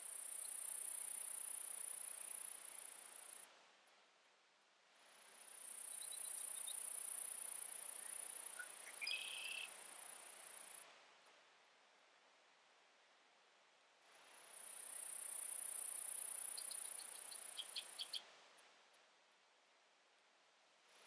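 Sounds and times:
insect trilling: 5.6s - 10.8s, 14.5s - 18.2s.

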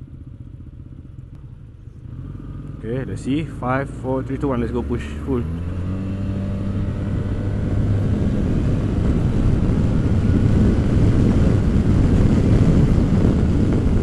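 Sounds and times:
scooter engine accelerating: 0.0s - 14.0s
wind rushing over camera: 5.2s - 14.0s.

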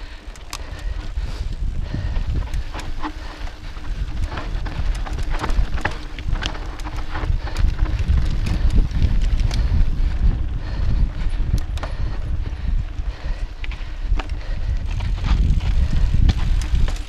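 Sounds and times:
bike clicks and rattles: 0.0s - 17.0s
wind rumble on microphone: 0.0s - 17.0s
tyres crunching on dirt and gravel: 0.4s - 9.8s.

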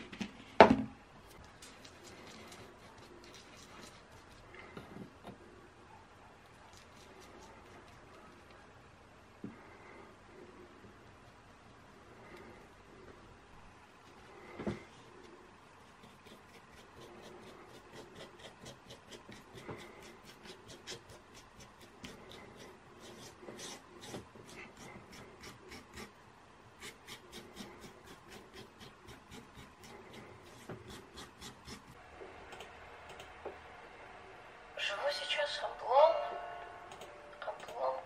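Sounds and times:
paintbrush scratchy strokes: 1.6s - 4.9s, 14.0s - 26.2s, 26.8s - 32.0s.

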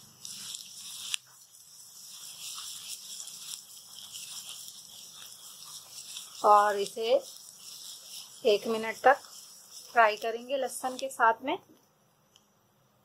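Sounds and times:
onions sizzling in hot oil: 0.0s - 11.5s.

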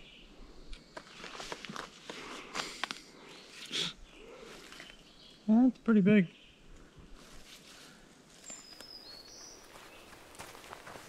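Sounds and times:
footsteps on dirt road: 8.4s - 11.0s.

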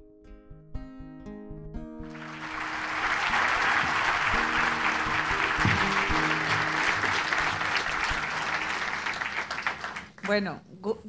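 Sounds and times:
audience applauding: 2.1s - 10.4s
background music: 2.1s - 10.5s.

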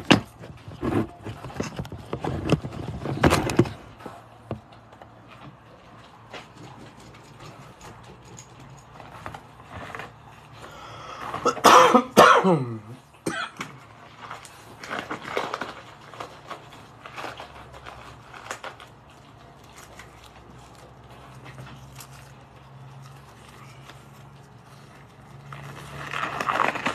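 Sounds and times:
person coughing: 11.4s - 13.8s.

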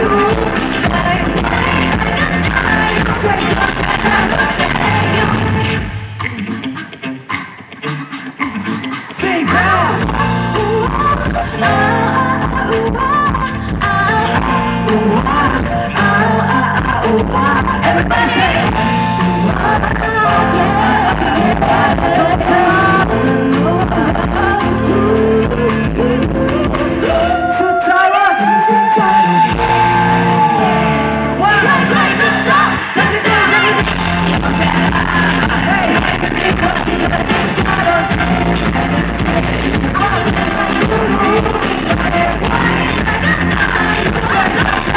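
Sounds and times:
live pop band playing: 0.0s - 44.9s
man singing into microphone: 14.4s - 44.9s.

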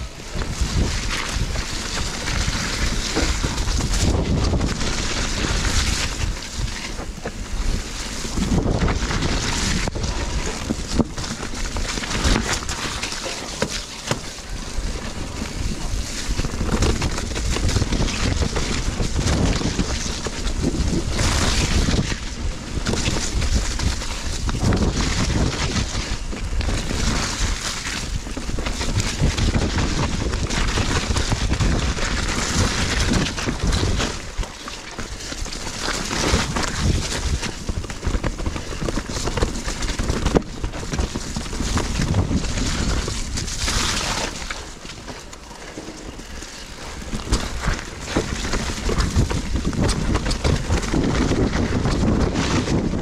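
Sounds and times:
bike rattling over roots: 0.0s - 53.0s
tyres rolling through mud: 0.0s - 53.0s
wind rush over microphone: 0.0s - 53.0s.

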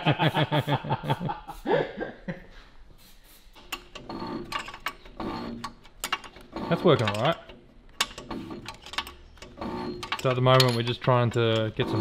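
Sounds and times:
man laughing: 0.0s - 2.6s
metallic clicking and scraping: 3.6s - 12.0s.

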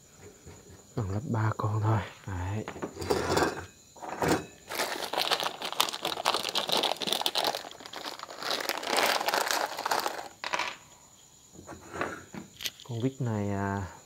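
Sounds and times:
plastic bag of screws crinkling: 4.7s - 10.8s.

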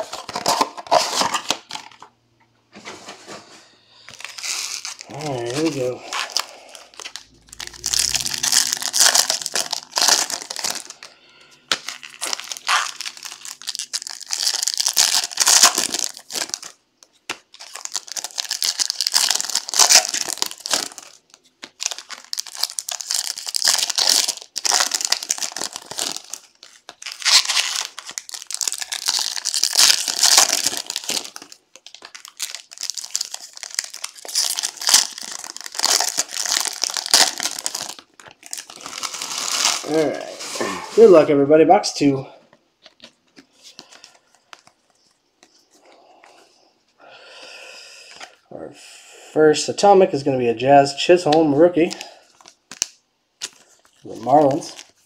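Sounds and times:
foil wrappers tearing and crinkling: 0.0s - 2.0s, 4.0s - 41.2s, 51.2s - 55.0s.

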